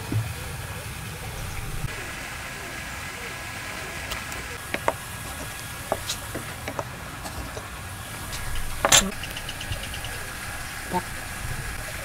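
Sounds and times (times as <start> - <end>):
wooden gauge tapping and scraping: 4.6 - 9.4
metal square clattering on board: 8.3 - 9.2.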